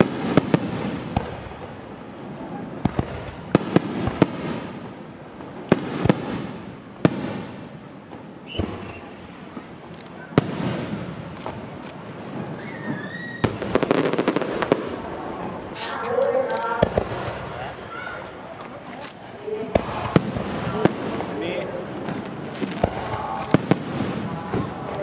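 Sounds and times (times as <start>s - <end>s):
firework crackling: 0.0s - 25.0s
firework shells bursting: 5.6s - 25.0s.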